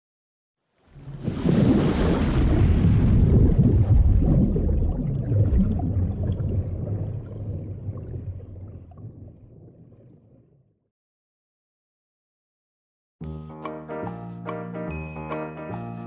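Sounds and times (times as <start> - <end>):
low water rumble: 0.8 - 10.9
underwater bubbling: 0.9 - 10.8.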